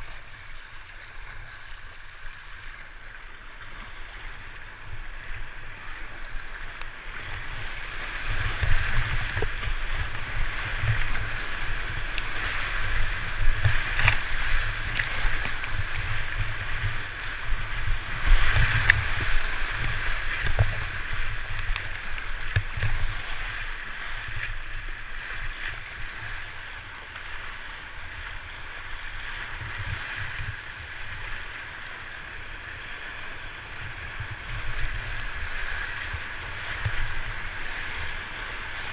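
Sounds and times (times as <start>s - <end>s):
whitewater rushing and splashing: 0.0s - 38.9s
water thudding against boat: 8.2s - 23.4s.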